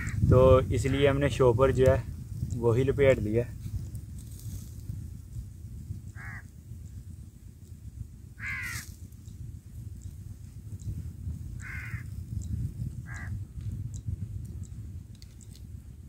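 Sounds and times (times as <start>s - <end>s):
wind rumble on microphone: 0.0s - 16.0s
crow cawing: 6.2s - 6.5s, 8.4s - 8.9s, 11.6s - 12.1s, 13.1s - 13.3s.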